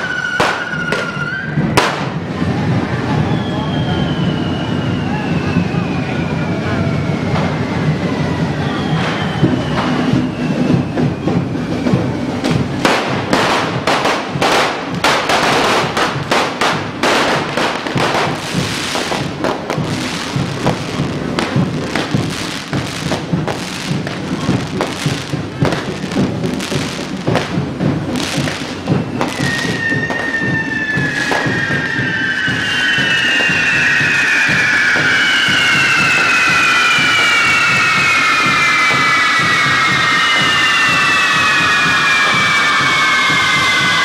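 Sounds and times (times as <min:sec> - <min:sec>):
falling firework whistles: 0:00.0 - 0:44.0
firecracker bangs: 0:00.0 - 0:44.0
firework fountains hissing: 0:00.0 - 0:44.0
music: 0:00.2 - 0:44.0.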